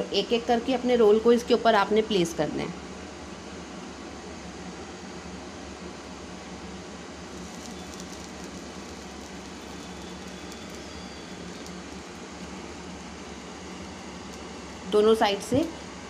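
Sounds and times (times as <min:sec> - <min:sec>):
low hum and hiss: 0:00.0 - 0:16.0
bread rolls tapping on griddle: 0:07.3 - 0:14.8.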